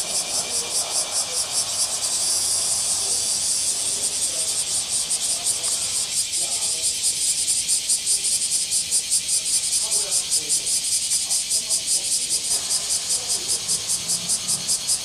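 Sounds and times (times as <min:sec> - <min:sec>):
cicadas chorus: 0:00.0 - 0:15.0.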